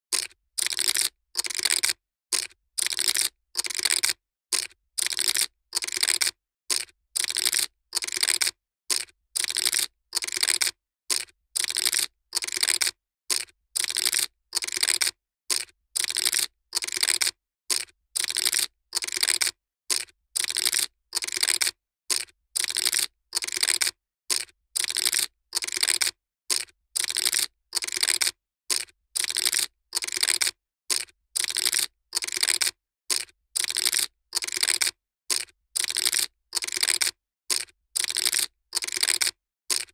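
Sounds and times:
poker chips clattering: 0:31.4 - 0:39.9.

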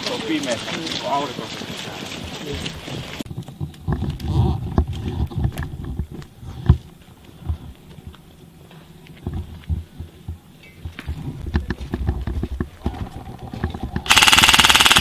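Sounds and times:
footsteps on soft ground: 0:00.0 - 0:14.1.

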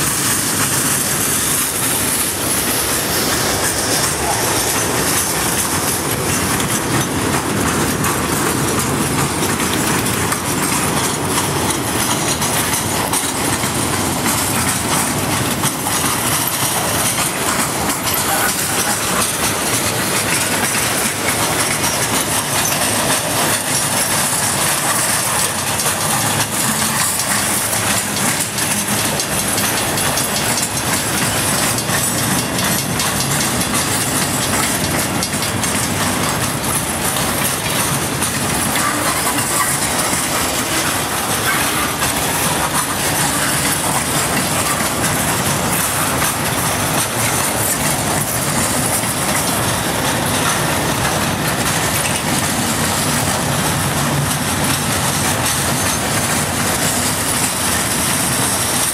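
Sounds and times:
freight train wheels rumbling: 0:00.0 - 0:58.9
wheels clicking over rail joints: 0:00.0 - 0:58.9.

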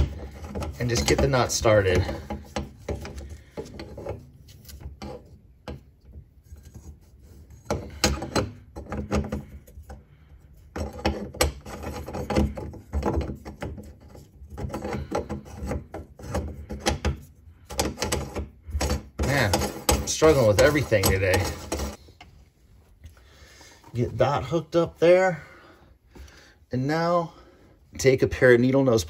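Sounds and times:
nut scraping on threads: 0:00.0 - 0:22.1.

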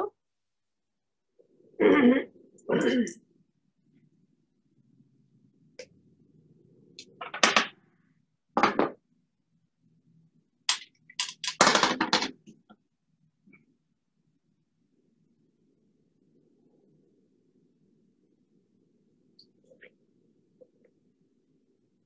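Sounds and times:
objects knocking and clattering: 0:07.2 - 0:07.8, 0:08.6 - 0:09.1, 0:10.7 - 0:12.7.

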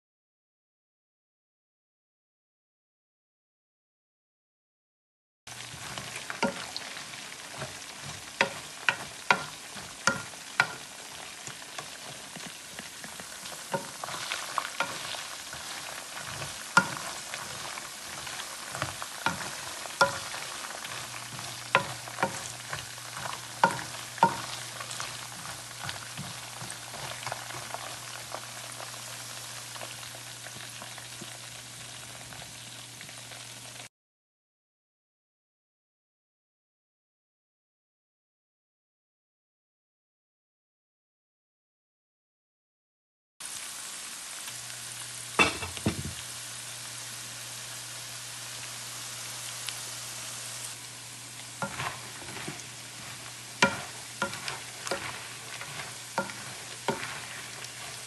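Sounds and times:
spoon scraping a pan: 0:05.5 - 0:31.4, 0:45.4 - 0:46.2, 0:51.6 - 0:58.0
food sizzling in oil: 0:05.5 - 0:33.9, 0:43.4 - 0:58.0.

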